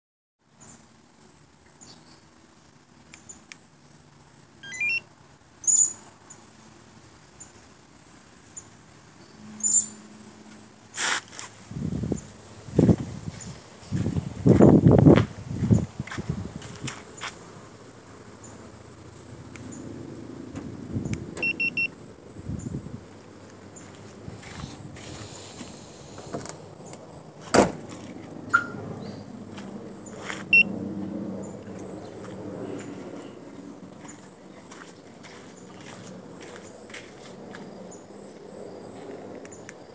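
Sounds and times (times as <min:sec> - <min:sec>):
rising electronic melody: 0:04.6 - 0:05.0
car alarm beeps: 0:04.6 - 0:05.1, 0:21.4 - 0:22.0, 0:30.5 - 0:30.7
high-pitched electronic chirps: 0:04.6 - 0:05.1.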